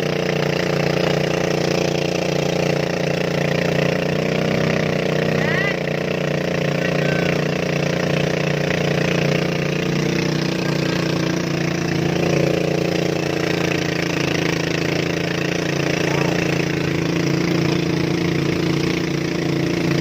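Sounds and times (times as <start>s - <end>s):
boat engine droning: 0.0s - 20.0s
water hissing along hull: 0.0s - 20.0s.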